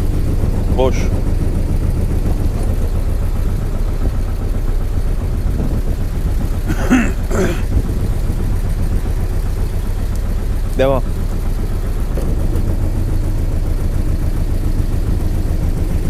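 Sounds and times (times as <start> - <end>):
boat engine rumbling: 0.0 - 16.0
short vocal sound: 6.7 - 7.7.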